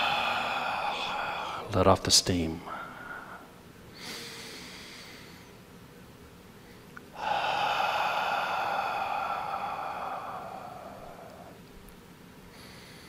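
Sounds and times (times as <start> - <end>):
man exhaling through mouth: 0.0 - 1.7, 7.2 - 11.6.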